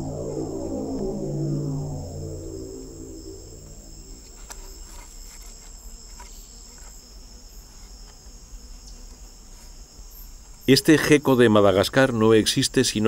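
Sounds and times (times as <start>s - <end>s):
soft music: 0.0s - 4.2s
insects chirring: 0.0s - 13.0s.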